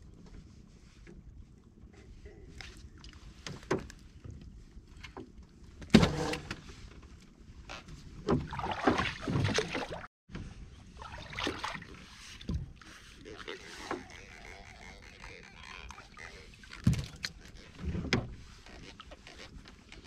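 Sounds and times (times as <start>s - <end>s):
knocks and bumps on a boat: 8.1s - 10.5s, 16.8s - 18.4s.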